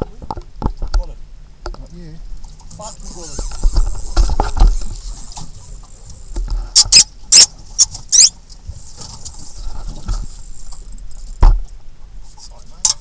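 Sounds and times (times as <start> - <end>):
fishing reel drag buzzing: 2.8 - 8.4, 10.2 - 11.4.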